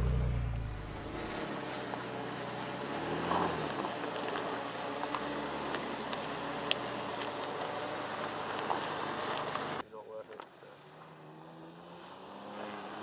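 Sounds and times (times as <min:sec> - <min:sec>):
truck engine at low revs: 0:00.0 - 0:13.0
stones crunching under tyres: 0:00.5 - 0:10.5.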